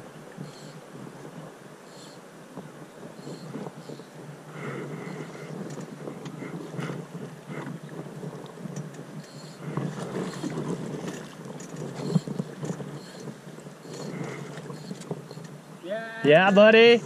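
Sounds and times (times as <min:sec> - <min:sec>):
water sloshing around boat hull: 0:05.3 - 0:15.6.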